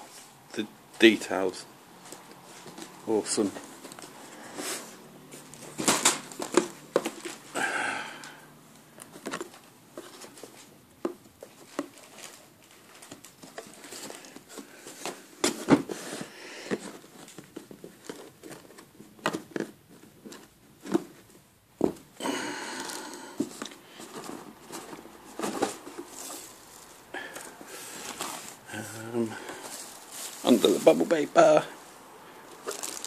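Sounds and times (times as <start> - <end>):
plastic packaging crinkling: 11.4 - 15.0, 22.8 - 31.7, 32.5 - 33.0
cardboard box being handled: 23.4 - 31.3.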